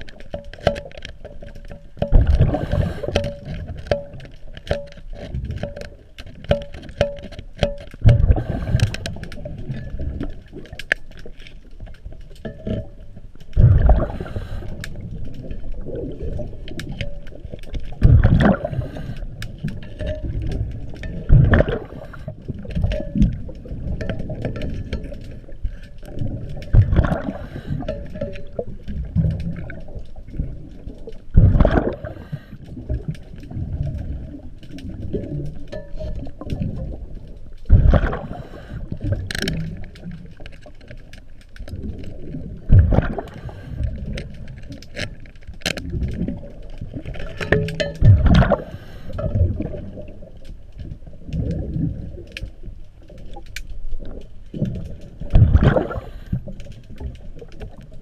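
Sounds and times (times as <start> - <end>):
small clicks and knocks: 0.0 - 13.7, 38.9 - 42.3, 42.9 - 49.7
exhaled bubbles bursting: 2.0 - 3.9, 8.0 - 10.7, 13.6 - 40.2, 41.7 - 44.5, 45.8 - 50.3, 54.0 - 58.0
diver breathing through regulator: 2.4 - 3.5, 8.3 - 9.2, 13.9 - 15.0, 18.5 - 19.4, 38.1 - 39.0, 48.5 - 49.4.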